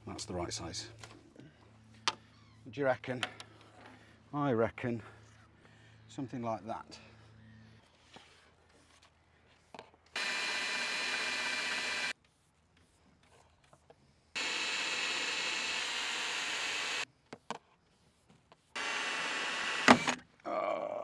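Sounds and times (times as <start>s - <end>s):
cordless power drill running: 10.2s - 12.1s, 14.4s - 17.0s, 18.8s - 20.2s.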